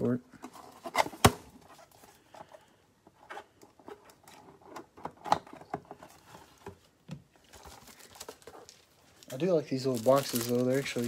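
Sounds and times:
rustling: 5.9 - 11.0.

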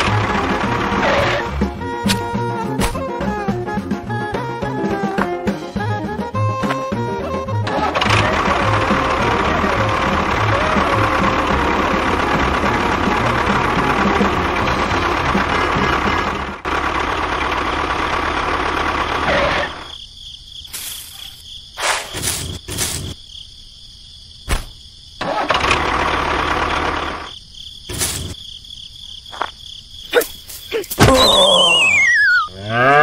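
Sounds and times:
engine-like rumble: 0.0 - 19.9, 25.2 - 27.4
whistle gliding down in pitch: 31.1 - 32.5.

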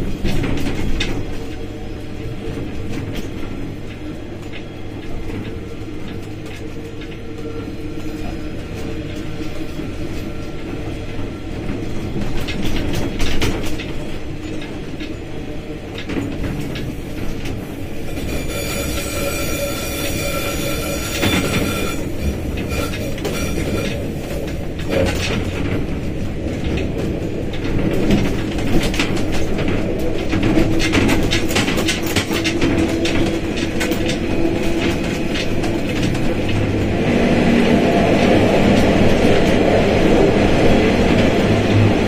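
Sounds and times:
wheels clicking over rail joints: 0.0 - 37.1
locomotive engine rumble: 0.0 - 42.0
high wheel squeal: 17.8 - 24.5.

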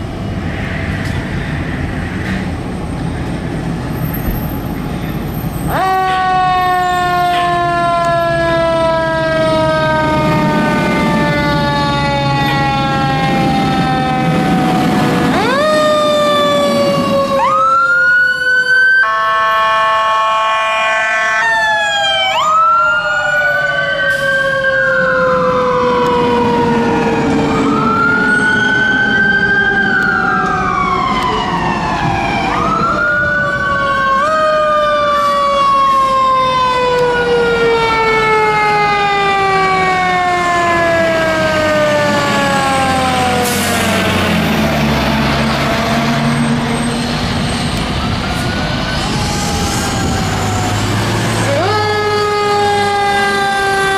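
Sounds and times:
electronic sirens wailing: 5.2 - 53.9
mechanical siren winding down: 5.7 - 20.4, 21.2 - 53.9.

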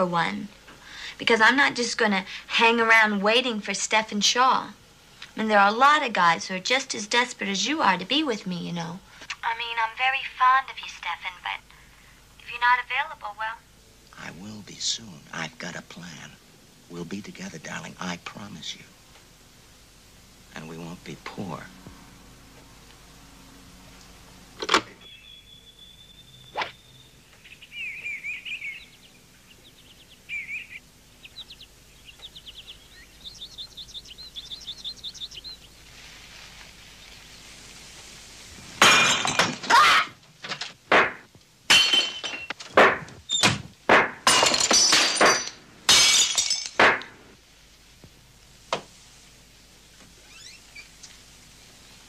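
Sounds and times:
bird-like chirps and trills: 25.0 - 35.9
loud crashes like breaking glass: 38.8 - 39.8, 40.9 - 47.1.

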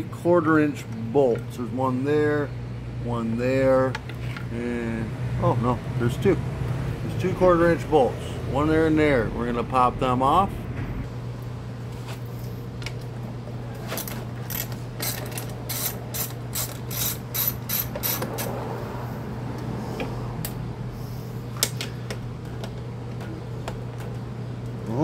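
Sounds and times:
steady low hum: 0.0 - 25.0
ratchet wrench clicking: 14.5 - 18.5.

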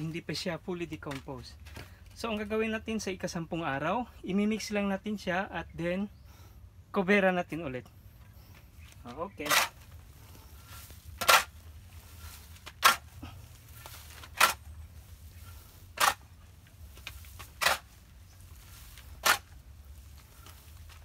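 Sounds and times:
garden tool digging into compost: 9.1 - 21.0.

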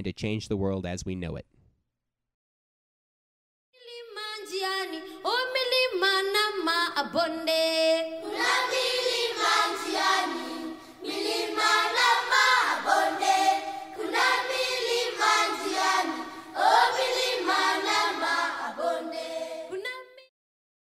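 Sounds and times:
choir singing: 8.1 - 20.0.

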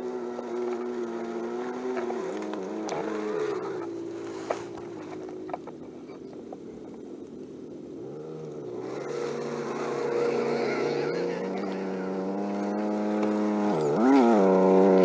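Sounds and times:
simulated engine sound: 8.0 - 15.0.

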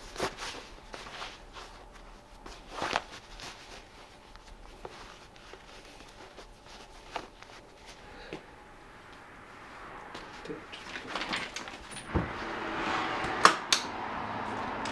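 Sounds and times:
fabric rustling: 0.0 - 12.3.

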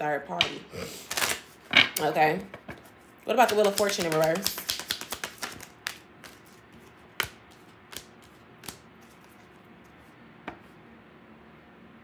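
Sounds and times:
cards rustling: 1.0 - 1.6, 2.8 - 10.0
cards snapping: 1.1 - 1.4, 3.4 - 9.4.

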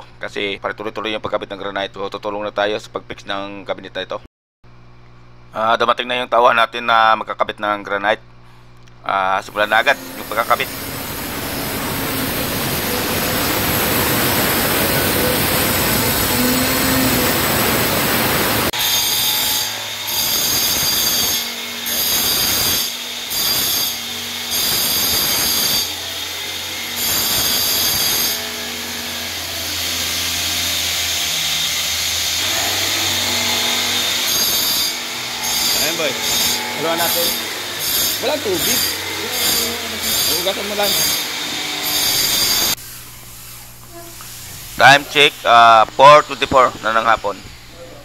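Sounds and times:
angle grinder cutting stone: 9.4 - 42.8
jigsaw cutting wood: 9.6 - 42.8.

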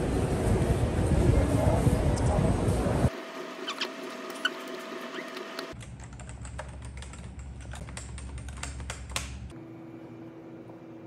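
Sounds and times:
computer keyboard typing: 5.3 - 9.4.

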